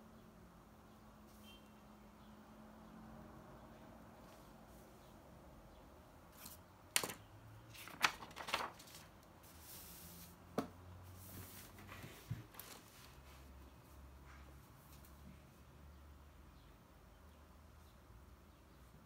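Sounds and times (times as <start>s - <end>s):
paper page crackling: 6.4s - 10.0s.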